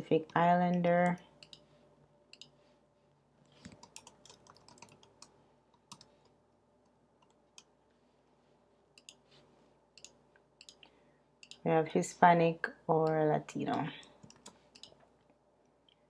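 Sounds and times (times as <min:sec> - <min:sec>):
faint keyboard typing: 0:00.0 - 0:01.7, 0:02.3 - 0:02.6, 0:03.5 - 0:07.7, 0:08.9 - 0:11.7, 0:13.0 - 0:16.0.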